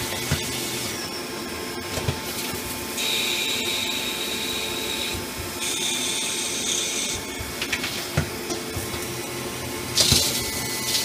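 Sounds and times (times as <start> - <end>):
high steady whine: 0.0 - 11.0
lathe cutting with coolant hiss: 2.2 - 8.1.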